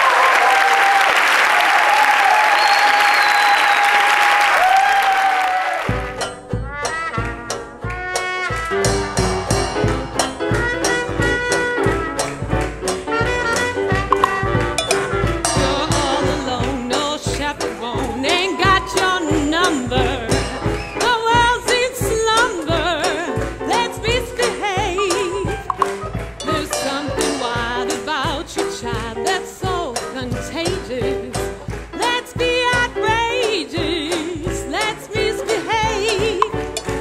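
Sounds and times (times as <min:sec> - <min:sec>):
swing jazz band with brass: 0:05.8 - 0:37.0
woman singing: 0:15.6 - 0:36.7.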